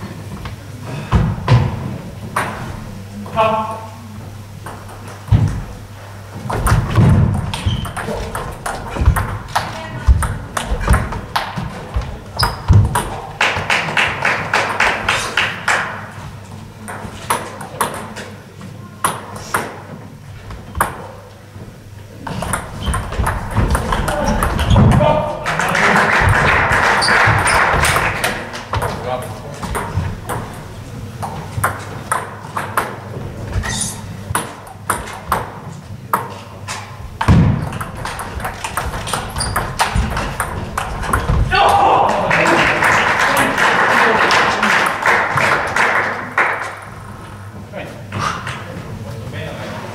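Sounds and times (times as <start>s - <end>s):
table tennis balls clicking: 6.5s - 15.1s, 22.3s - 25.0s, 26.6s - 36.4s, 37.2s - 41.5s
hand clapping: 13.4s - 16.0s, 25.4s - 28.7s, 42.3s - 46.8s.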